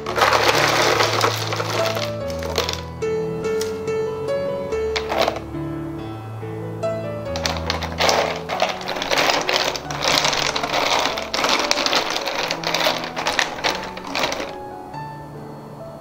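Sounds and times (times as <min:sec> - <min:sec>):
ice cubes clattering: 0:00.0 - 0:02.9, 0:05.0 - 0:05.4, 0:07.3 - 0:14.6.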